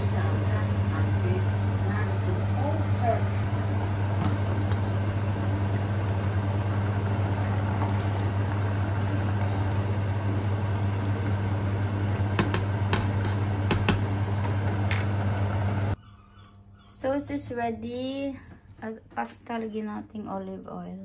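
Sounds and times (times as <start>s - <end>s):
water boiling in a pot: 0.0s - 16.0s
low hum: 0.0s - 16.8s.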